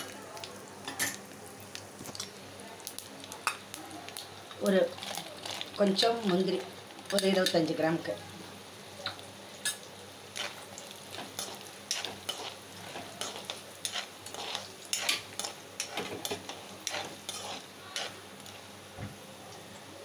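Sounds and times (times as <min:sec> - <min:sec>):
nuts sizzling in oil: 0:00.0 - 0:20.0
steel spoon scraping pan: 0:10.4 - 0:18.6.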